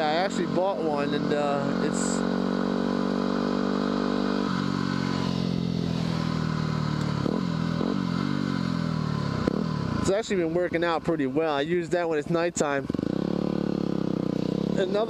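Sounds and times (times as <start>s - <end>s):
motorcycle engine slowing: 0.0s - 15.0s.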